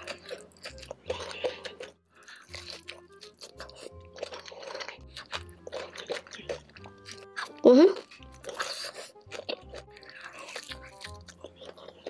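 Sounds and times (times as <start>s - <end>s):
crunching and chewing fried chicken: 0.0s - 12.0s.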